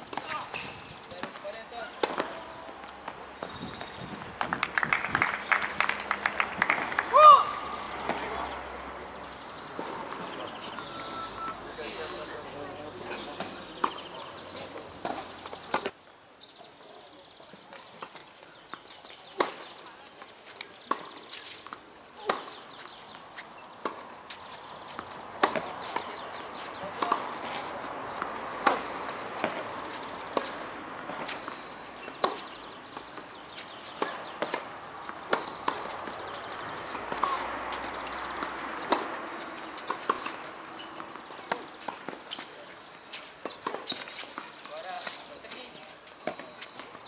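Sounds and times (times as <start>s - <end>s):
tennis ball on racquet strings: 0.1s - 4.6s, 20.4s - 47.0s.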